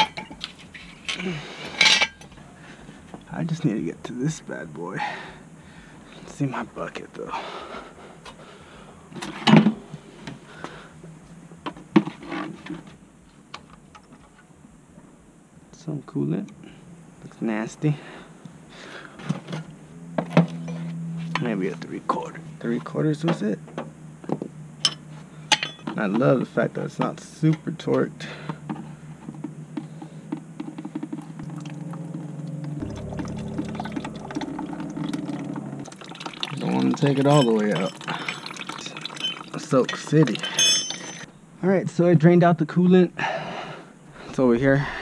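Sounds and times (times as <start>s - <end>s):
tools and parts handled: 24.8s - 26.0s, 39.0s - 41.3s
coolant pouring into bucket: 32.8s - 40.4s.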